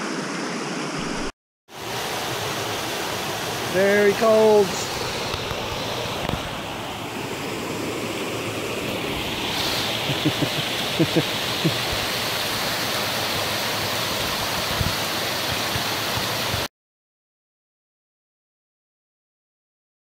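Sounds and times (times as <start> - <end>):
creek rushing over rocks: 0.0 - 16.7.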